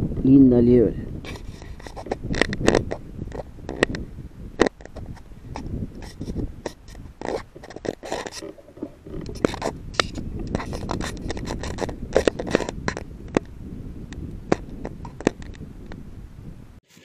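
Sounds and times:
brush scraping against scope: 1.2s - 4.0s, 4.6s - 13.0s
sharp clicks and snaps: 1.3s - 4.0s, 4.6s - 8.5s.

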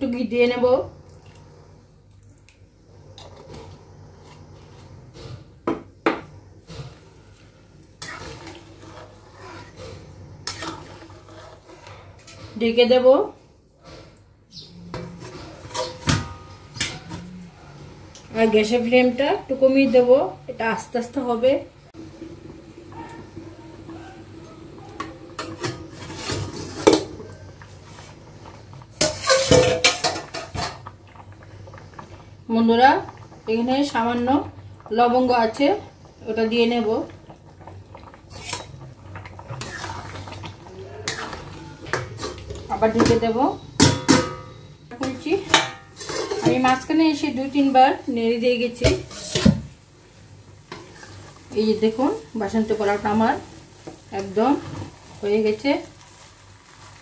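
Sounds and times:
liquid sloshing in pan: 1.0s - 13.5s, 21.9s - 44.4s, 45.0s - 57.0s
utensil scraping metal pan: 8.0s - 12.9s, 13.9s - 17.3s, 29.0s - 30.8s, 43.8s - 47.0s.

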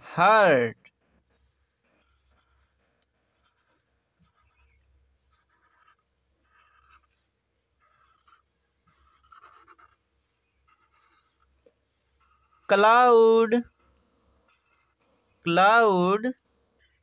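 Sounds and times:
marker scratching on paper: 1.1s - 13.1s, 14.4s - 15.1s.

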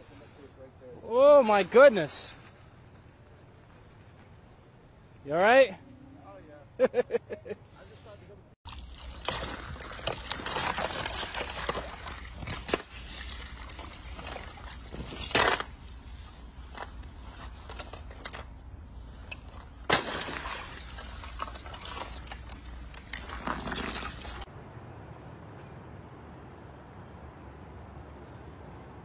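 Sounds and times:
water sloshing in pool: 8.6s - 16.6s, 19.4s - 24.5s
spillway water trickling: 8.6s - 17.2s, 18.9s - 24.5s.

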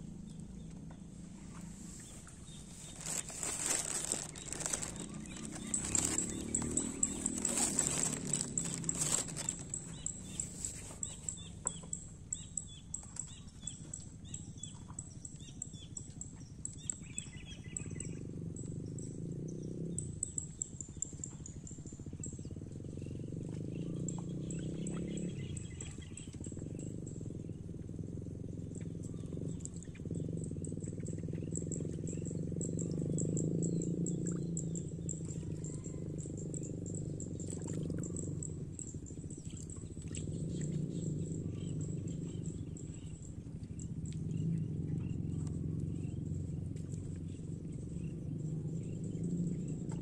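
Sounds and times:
birds chirping: 0.3s - 13.0s
insects trilling: 1.9s - 11.3s.

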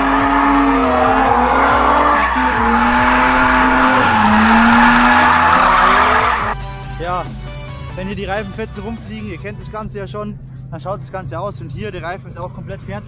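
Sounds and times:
car tyres squealing: 0.0s - 6.6s
electronic music: 0.0s - 6.6s.

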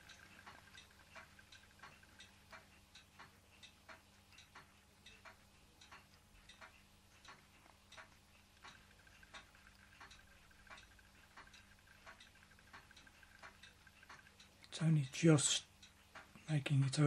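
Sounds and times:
engine linkage ticking: 5.8s - 14.5s.

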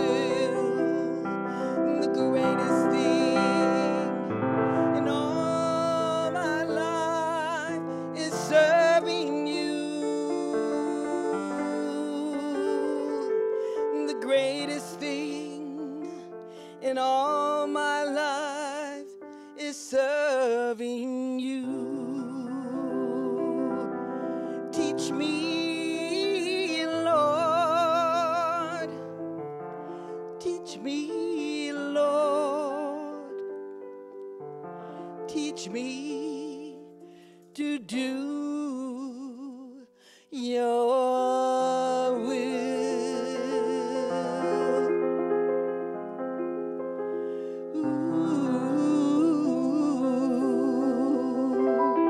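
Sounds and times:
woman singing a hymn: 0.0s - 4.3s, 4.9s - 13.3s, 14.0s - 23.9s, 24.6s - 29.0s, 30.4s - 33.4s, 35.3s - 36.9s, 37.6s - 39.8s, 40.4s - 44.9s, 47.8s - 52.0s
grand piano: 0.0s - 52.0s.

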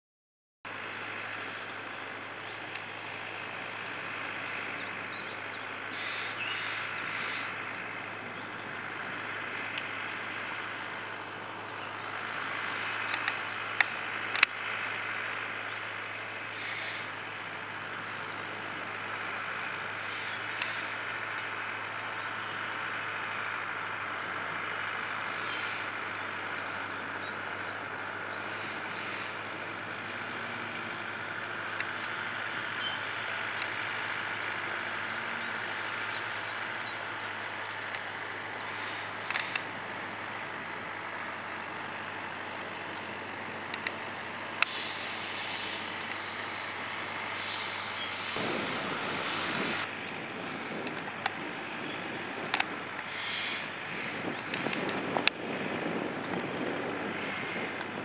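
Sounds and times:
distant tractor diesel engine: 0.7s - 58.0s.

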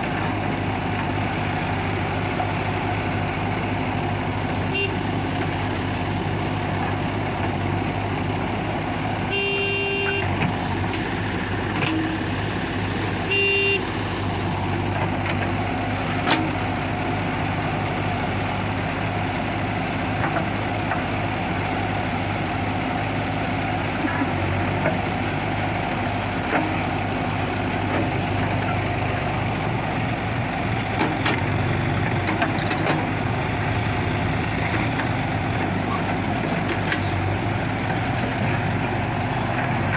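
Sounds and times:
diesel engine running: 0.0s - 39.9s
vehicle horn toots: 4.7s - 5.0s, 9.3s - 10.3s, 13.3s - 13.8s.

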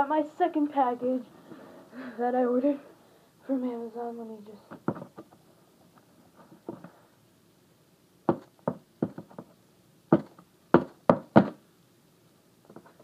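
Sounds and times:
knocks on cardboard box: 8.3s - 9.5s, 10.1s - 11.6s.

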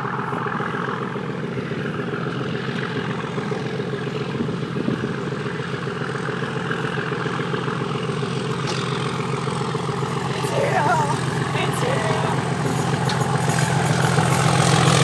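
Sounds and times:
diesel locomotive engine running: 0.0s - 15.0s.

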